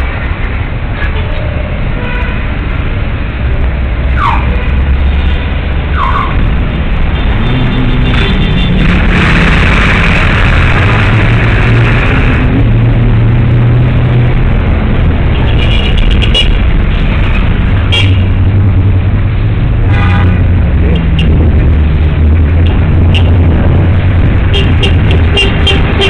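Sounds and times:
street traffic engine hum: 0.0 - 26.0
car horn toot: 24.5 - 26.0.

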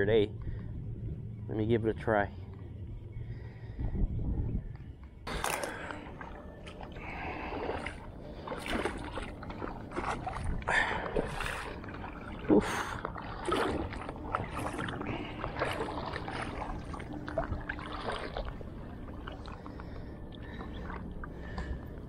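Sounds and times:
steady low rumble: 0.0 - 22.0
water sloshing and splashing: 5.0 - 22.0.

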